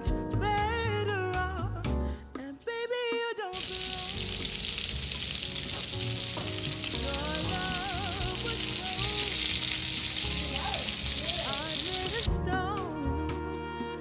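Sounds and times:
sausages sizzling in a pan: 3.6s - 12.3s.

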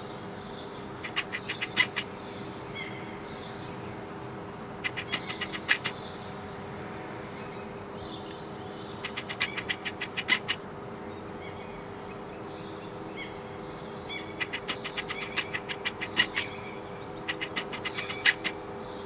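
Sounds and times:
magpie chattering: 1.0s - 2.2s, 4.8s - 6.0s, 8.9s - 10.6s, 14.1s - 18.6s.

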